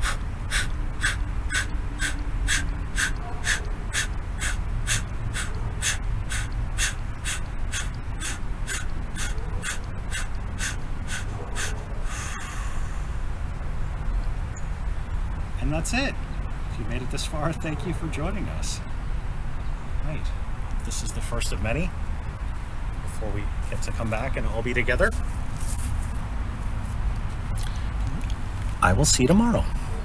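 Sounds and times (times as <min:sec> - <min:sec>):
man forcefully exhaling: 0:00.0 - 0:13.2
long breath: 0:00.0 - 0:13.3.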